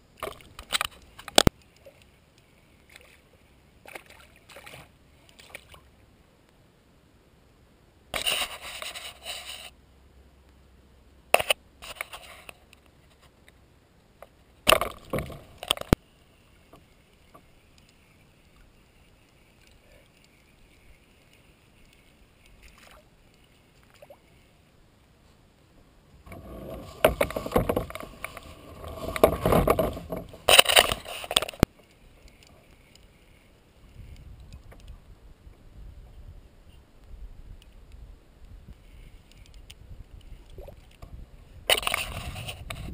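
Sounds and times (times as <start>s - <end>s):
water splashing: 2.8s - 5.9s, 16.6s - 24.6s.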